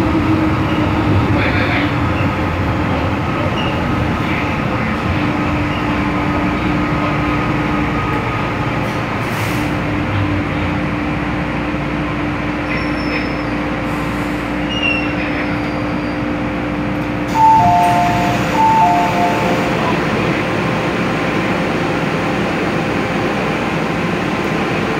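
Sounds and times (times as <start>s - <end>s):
metro train running hum: 0.0s - 24.9s
two-note door chime: 17.4s - 19.5s.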